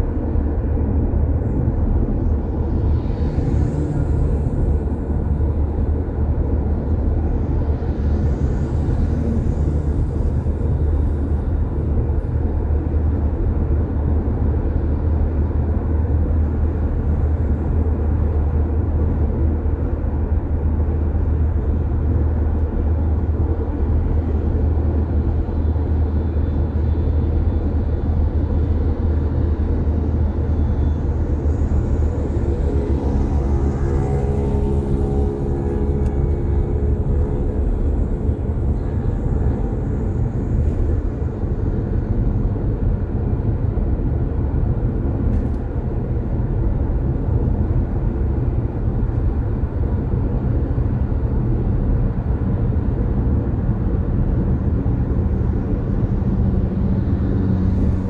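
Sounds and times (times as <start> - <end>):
droning multi-pitch tone: 0.0 - 15.6, 23.4 - 44.0
car tyre and wind noise: 0.0 - 58.0.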